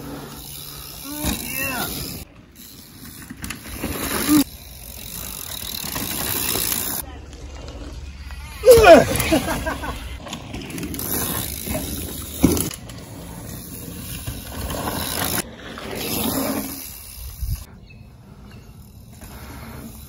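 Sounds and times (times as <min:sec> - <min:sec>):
bike tyres skidding on dirt: 0:00.0 - 0:17.7, 0:18.3 - 0:20.0
bike landing thud: 0:11.7 - 0:12.8.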